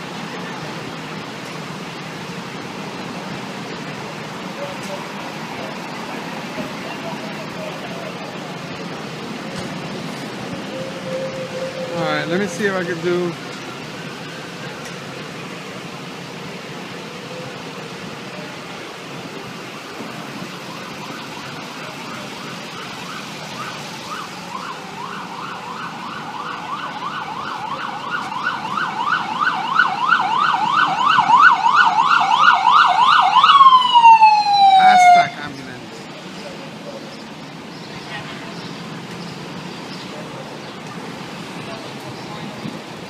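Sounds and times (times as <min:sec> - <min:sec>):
ambulance siren yelping: 0:04.7 - 0:13.4, 0:16.7 - 0:35.4.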